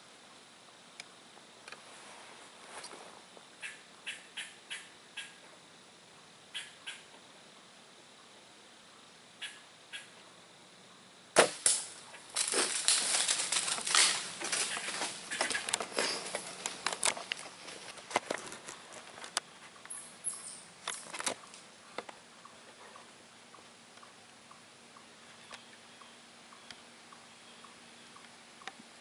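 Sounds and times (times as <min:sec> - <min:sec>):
bowstring crack: 0:11.4 - 0:17.4
deer crashing through dry leaves: 0:11.4 - 0:17.9.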